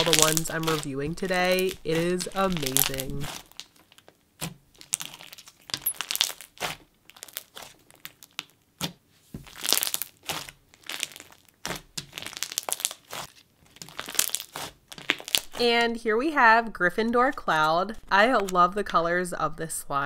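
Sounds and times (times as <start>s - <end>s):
crunchy foam bead slime squeezed: 0.0s - 15.6s.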